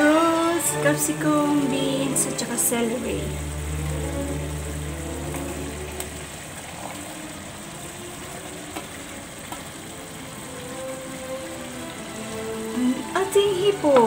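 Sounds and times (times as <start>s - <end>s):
wok sizzling: 0.0s - 14.0s
vegetables tapping into wok: 8.6s - 9.8s.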